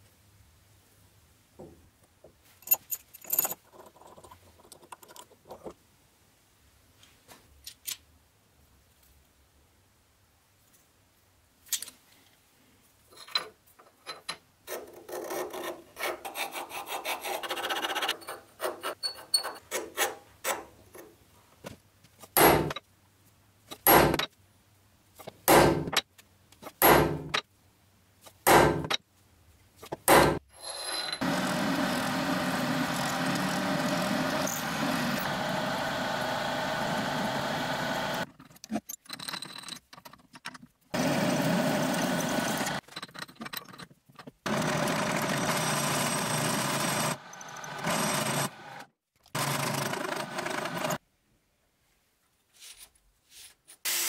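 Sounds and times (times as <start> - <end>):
drill press motor running: 31.2 - 38.2, 41.0 - 42.8, 44.5 - 51.0.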